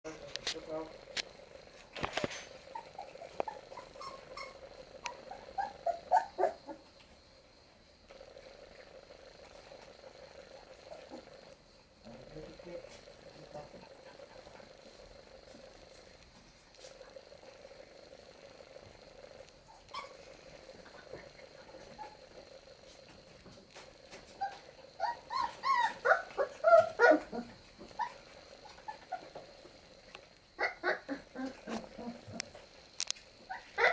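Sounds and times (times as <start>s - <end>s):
puppies whimpering: 2.5s - 6.8s, 19.6s - 20.4s, 24.3s - 29.5s.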